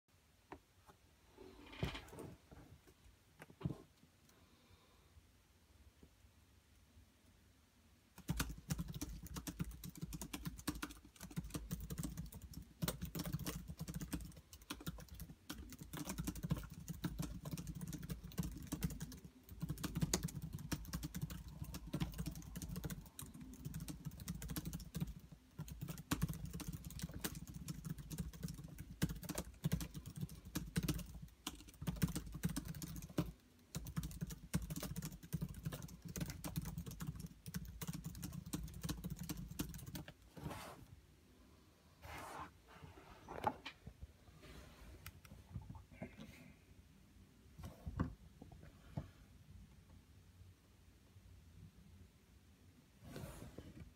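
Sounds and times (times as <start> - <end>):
fast typing on laptop keyboard: 8.2 - 40.2.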